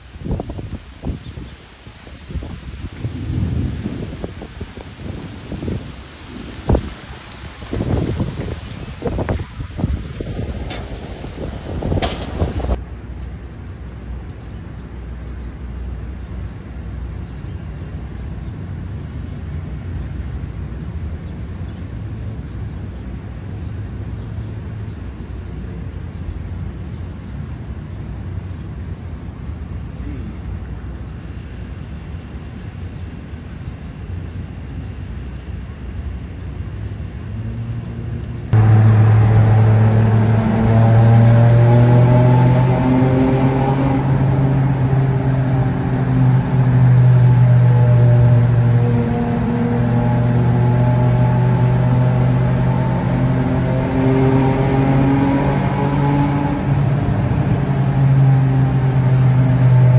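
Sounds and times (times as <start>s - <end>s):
wind buffeting microphone: 0.0s - 12.8s
low outdoor rumble: 0.0s - 54.1s
car engine droning: 36.8s - 59.9s.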